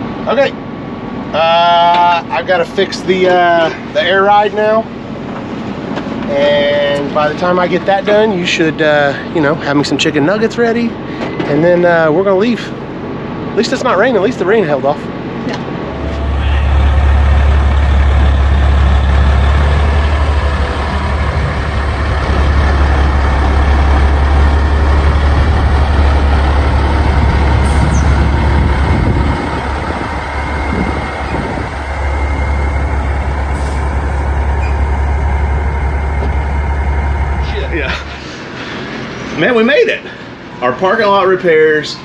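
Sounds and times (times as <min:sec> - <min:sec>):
road and wind noise: 0:00.0 - 0:42.0
truck engine drone: 0:12.4 - 0:42.0.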